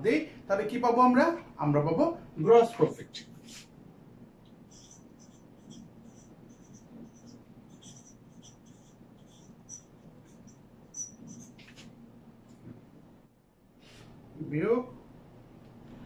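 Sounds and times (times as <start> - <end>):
marker squeaking on whiteboard: 4.5 - 11.9.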